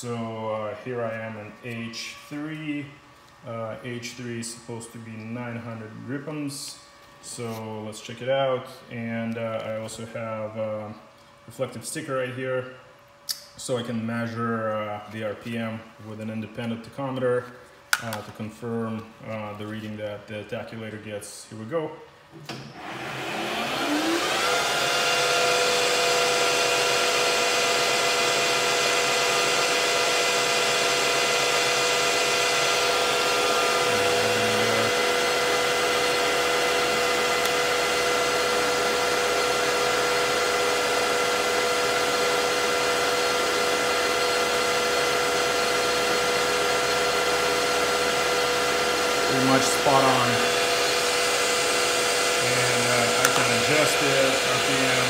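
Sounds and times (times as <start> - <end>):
lathe motor whine: 22.5 - 55.0.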